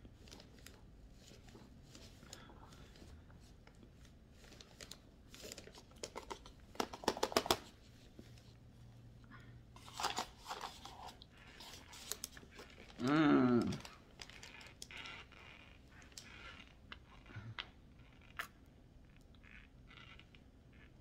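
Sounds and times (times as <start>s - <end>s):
cardboard crinkling: 0.2s - 7.8s, 9.8s - 15.3s.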